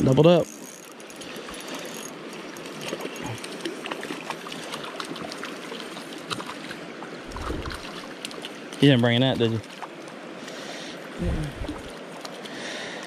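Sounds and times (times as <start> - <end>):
creek water running over rocks: 0.0 - 13.0
fish splashing and reel clicks: 0.3 - 8.8, 11.7 - 13.0.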